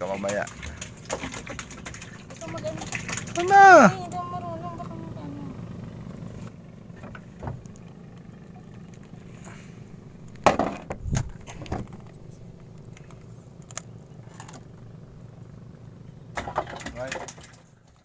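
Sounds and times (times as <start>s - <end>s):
steady low hum: 0.0s - 18.0s
knocks on wooden boat planks: 10.4s - 11.0s.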